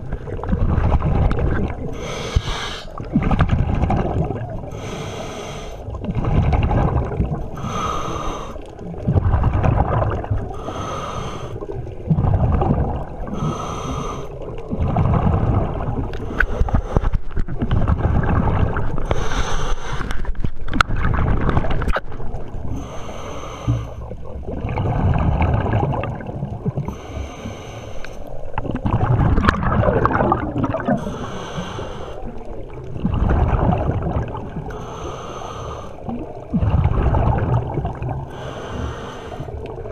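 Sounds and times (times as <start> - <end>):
exhaled bubbles rumbling: 0.0 - 39.9
regulator hissing inhale: 1.9 - 3.0, 4.7 - 5.9, 7.6 - 8.7, 10.6 - 11.6, 13.4 - 14.4, 16.2 - 17.2, 19.0 - 20.2, 22.8 - 24.1, 26.8 - 28.3, 31.0 - 32.4, 34.7 - 36.1, 38.3 - 39.7.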